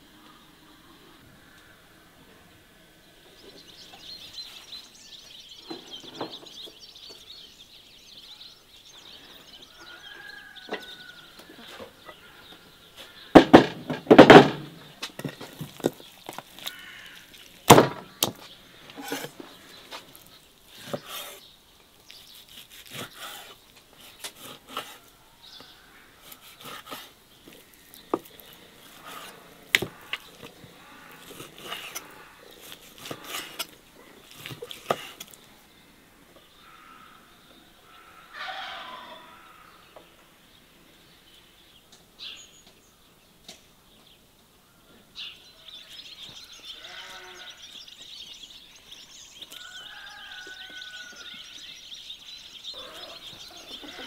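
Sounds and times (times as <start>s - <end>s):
faint bird chirping: 0.0s - 13.3s, 14.7s - 54.0s
sharp knocks and clatters: 13.3s - 16.0s.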